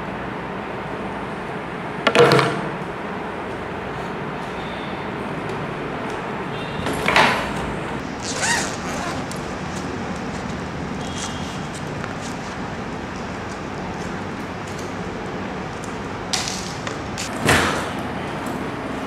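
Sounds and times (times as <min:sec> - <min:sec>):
bag squeaking: 0:08.0 - 0:13.0
zipper pulled: 0:08.1 - 0:12.6.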